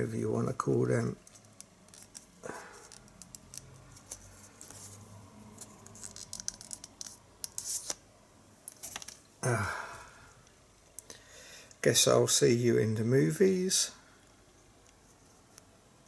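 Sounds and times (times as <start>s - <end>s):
cards shuffled and rustling: 1.2s - 8.0s, 8.7s - 9.3s
small clicks of cards: 1.3s - 4.2s.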